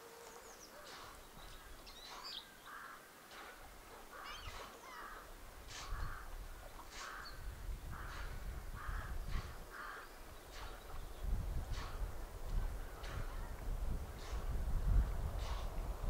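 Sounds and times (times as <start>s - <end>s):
crows cawing: 2.6s - 3.0s, 8.0s - 10.1s.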